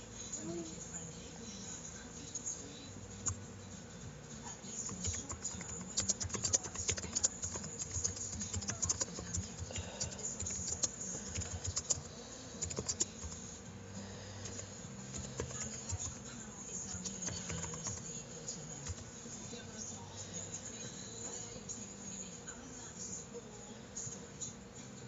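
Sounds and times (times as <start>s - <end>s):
computer keyboard typing: 4.9s - 13.4s, 14.4s - 16.2s, 17.0s - 18.0s.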